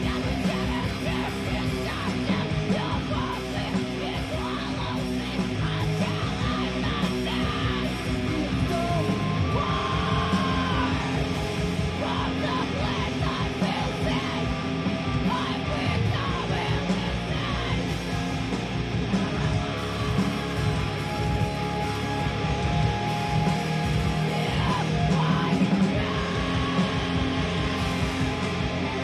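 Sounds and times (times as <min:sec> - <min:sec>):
screamed vocals: 0:00.0 - 0:14.6, 0:19.2 - 0:29.0
heavy metal electric guitars: 0:00.0 - 0:29.0.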